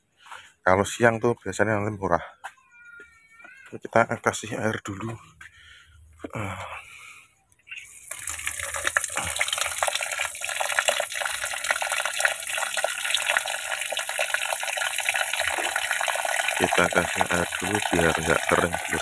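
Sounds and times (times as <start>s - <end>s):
water pouring into bucket: 7.8s - 19.0s.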